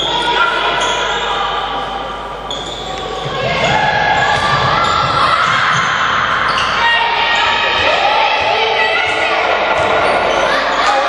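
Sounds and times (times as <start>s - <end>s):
shoes squeaking on court: 2.4s - 3.8s
ball bouncing: 3.2s - 5.2s.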